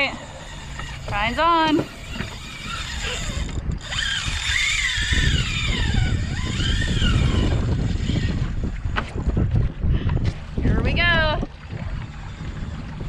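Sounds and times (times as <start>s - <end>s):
fishing reel drag whining: 0.0s - 8.9s, 11.9s - 13.0s
wind on microphone: 0.0s - 13.0s.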